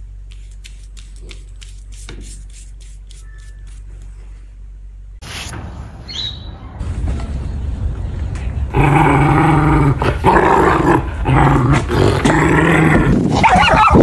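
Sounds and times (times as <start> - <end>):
dog growling: 8.7 - 14.0.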